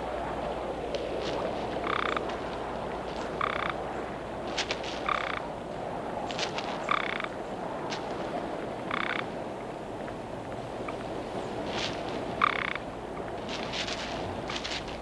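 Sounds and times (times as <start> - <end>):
background hiss: 0.0 - 15.0
toads calling: 1.8 - 2.3, 3.2 - 3.8, 4.6 - 5.5, 6.7 - 7.4, 8.8 - 9.4, 11.8 - 12.9.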